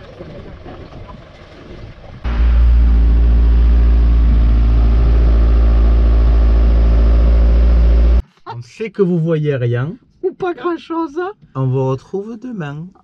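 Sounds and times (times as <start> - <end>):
camper van driving drone: 2.2 - 8.2.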